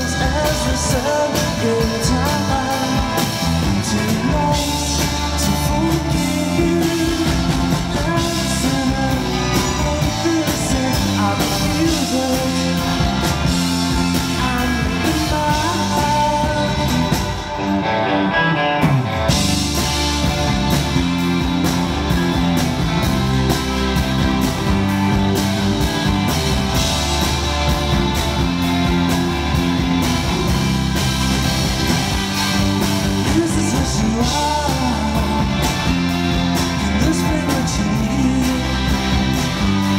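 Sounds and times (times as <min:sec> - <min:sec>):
person singing: 0:00.0 - 0:19.0, 0:32.4 - 0:39.9
rock band playing live: 0:00.0 - 0:39.9.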